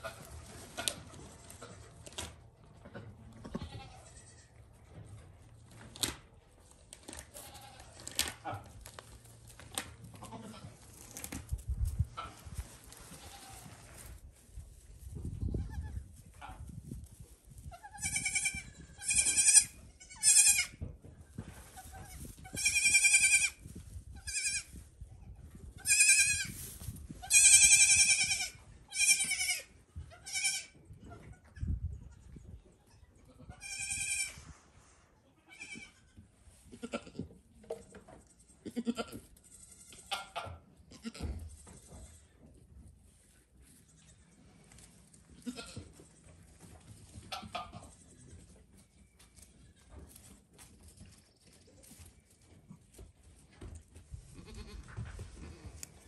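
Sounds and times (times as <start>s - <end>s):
goat kids bleating: 3.4s - 4.7s, 7.2s - 8.2s, 10.2s - 10.8s, 13.1s - 13.8s, 15.5s - 16.0s, 17.6s - 20.9s, 21.8s - 23.6s, 24.2s - 26.6s, 27.2s - 34.4s, 35.3s - 37.3s, 38.2s - 40.3s, 45.3s - 46.4s, 47.3s - 48.5s, 54.3s - 56.0s.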